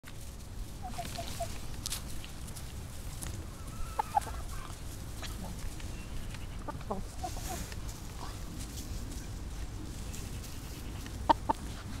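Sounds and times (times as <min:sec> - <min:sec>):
hen clucking: 0:00.8 - 0:01.7, 0:03.5 - 0:07.8, 0:10.2 - 0:12.0.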